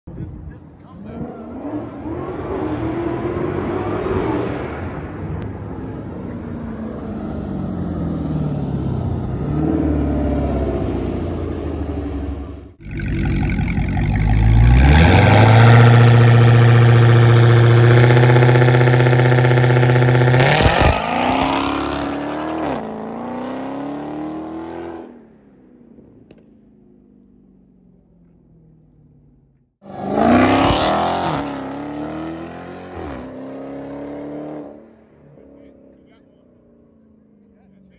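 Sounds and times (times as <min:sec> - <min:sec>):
distant car accelerating: 0:01.0 - 0:37.9
car engine revving: 0:06.0 - 0:26.4, 0:29.8 - 0:36.5.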